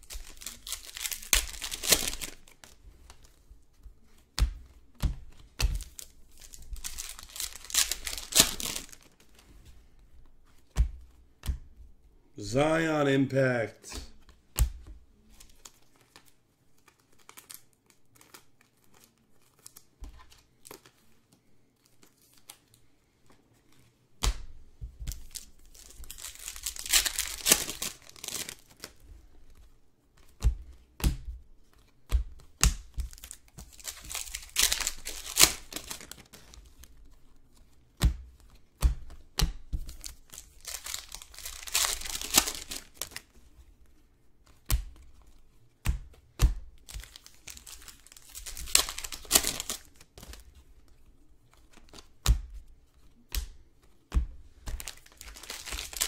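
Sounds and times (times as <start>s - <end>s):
card pack wrapper tearing: 0.0s - 2.7s, 5.8s - 9.1s, 25.2s - 29.0s, 33.1s - 36.5s, 40.0s - 43.2s, 47.0s - 50.3s, 54.8s - 56.0s
cards clicking and tapping: 4.1s - 9.5s, 30.2s - 37.1s, 38.0s - 43.3s, 44.5s - 50.6s, 53.2s - 56.0s.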